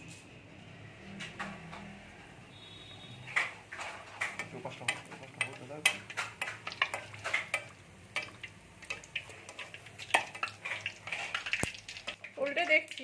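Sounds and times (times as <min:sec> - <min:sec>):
dough deep-frying in hot oil: 0:00.9 - 0:13.0
oil crackling and sizzling: 0:03.3 - 0:13.0
metal ladle clicking against pan: 0:04.2 - 0:12.3.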